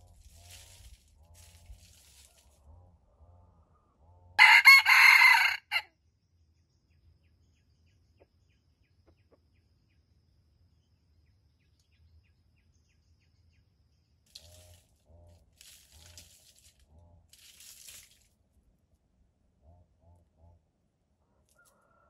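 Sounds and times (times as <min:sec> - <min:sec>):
rooster crowing: 0:04.4 - 0:05.9, 0:21.5 - 0:22.0.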